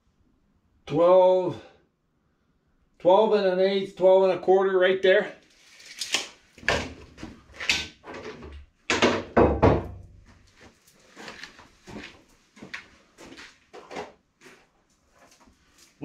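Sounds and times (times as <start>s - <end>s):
tools knocking and clattering: 6.6s - 10.2s
footsteps: 10.2s - 16.0s.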